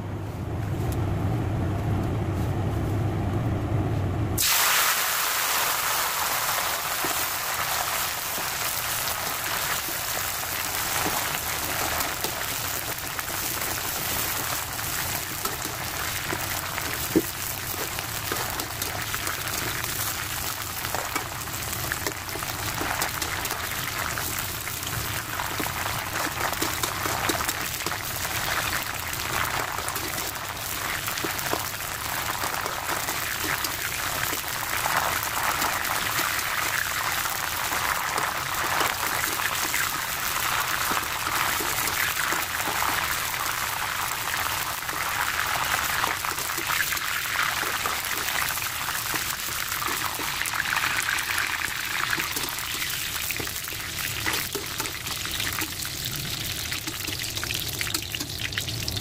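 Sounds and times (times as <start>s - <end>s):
leaves sizzling and crackling in oil: 4.4s - 59.0s.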